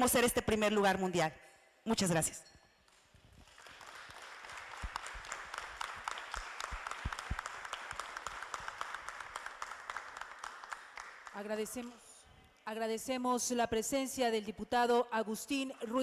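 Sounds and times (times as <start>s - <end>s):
audience applauding: 3.4s - 11.4s.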